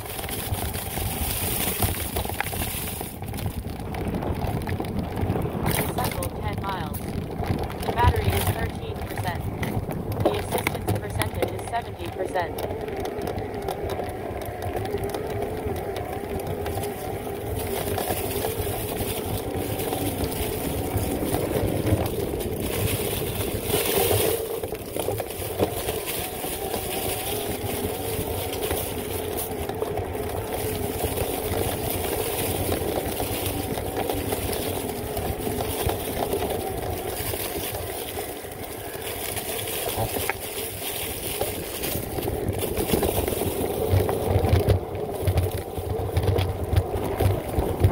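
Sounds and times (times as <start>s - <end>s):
tyres rolling on dirt and leaves: 0.0s - 47.9s
bike knocking over bumps: 12.5s - 47.9s.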